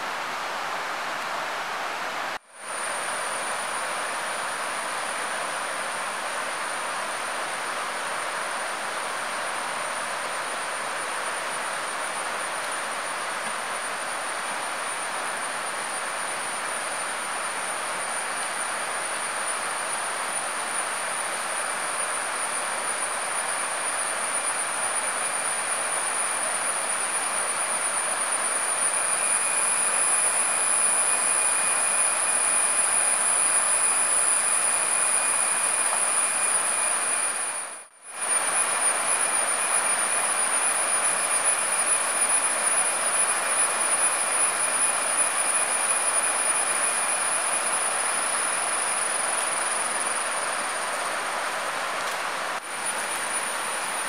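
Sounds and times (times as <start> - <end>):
high-pitched insect drone: 19.4 - 51.0
forest stream rushing: 47.0 - 54.0.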